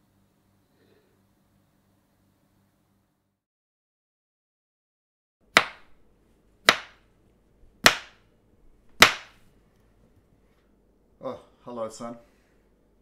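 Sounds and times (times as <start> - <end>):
knife chopping on cutting board: 5.5 - 6.0, 6.6 - 7.0, 7.8 - 8.2, 9.0 - 9.4.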